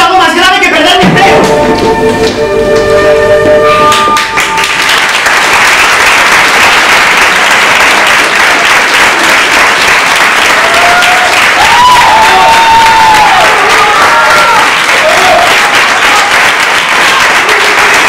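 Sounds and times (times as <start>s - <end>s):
audience applauding: 3.8s - 18.0s.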